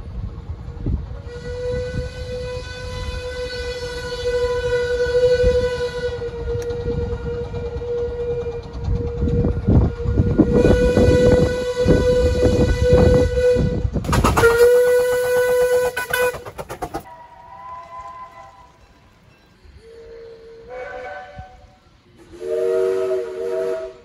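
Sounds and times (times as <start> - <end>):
steam exhaust beats: 0.0 - 24.0
steam whistle long blast: 1.2 - 16.5, 17.1 - 18.8, 19.8 - 24.0
loud steam hiss: 18.7 - 24.0.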